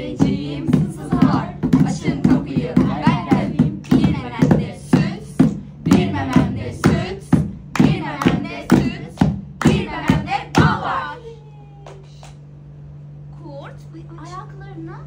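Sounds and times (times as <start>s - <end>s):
sharp evenly spaced beats: 0.0s - 11.0s.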